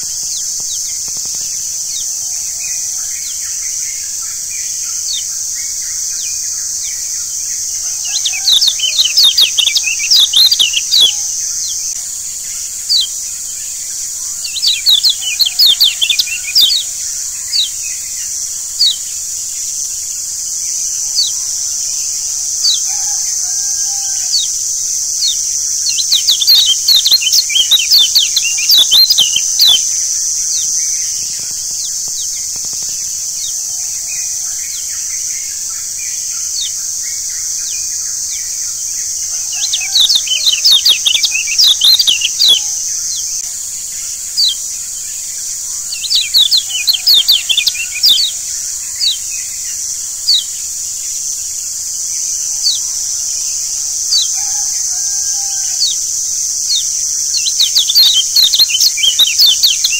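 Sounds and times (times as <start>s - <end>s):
bird chirping: 0.0s - 59.9s
steady high hiss: 0.0s - 59.9s.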